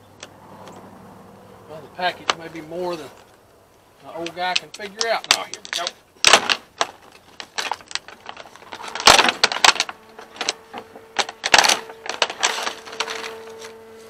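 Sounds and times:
plastic packaging crackling: 4.0 - 14.0.

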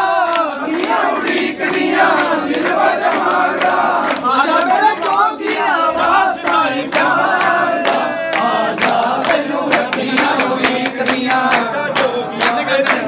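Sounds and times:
men singing devotional song: 0.0 - 13.0.

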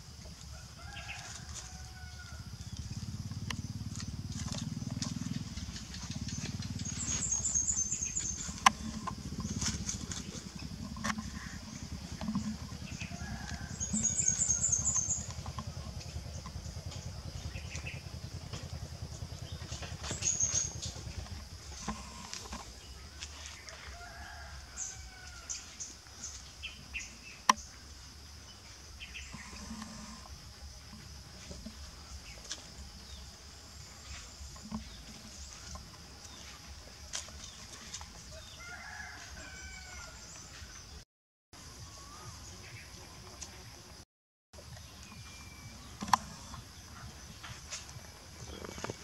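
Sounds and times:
steady low hum: 0.0 - 38.6, 44.6 - 49.0
dry leaves and sticks rustling: 0.2 - 17.2, 18.4 - 26.6, 30.9 - 40.1.

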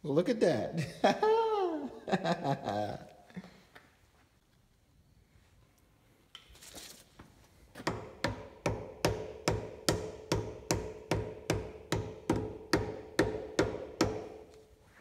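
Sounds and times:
mallet hammering on metal: 7.8 - 14.5.

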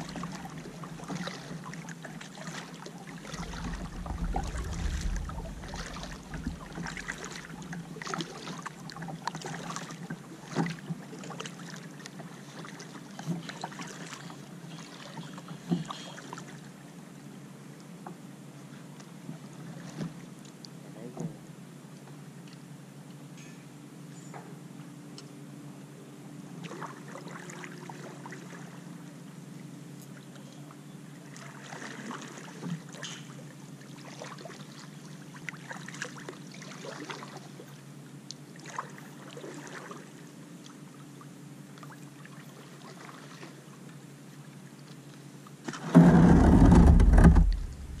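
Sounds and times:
paddle splashing in water: 0.0 - 16.7, 26.6 - 28.8, 31.2 - 37.8, 38.5 - 40.8, 41.8 - 44.0, 45.6 - 48.0
low steady background noise: 0.0 - 48.0.

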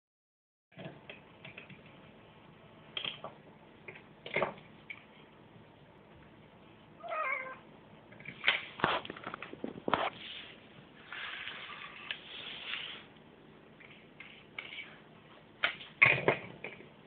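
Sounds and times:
cat meowing: 7.0 - 7.6.

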